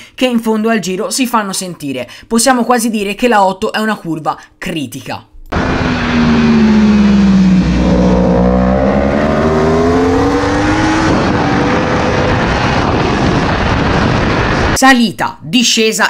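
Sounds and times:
motorcycle engine revving: 5.5s - 14.6s
wind rush: 5.5s - 14.8s.

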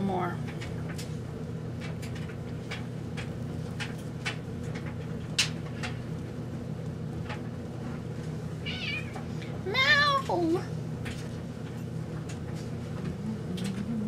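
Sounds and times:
steady low hum: 0.0s - 14.0s
cat meowing: 8.6s - 9.2s.

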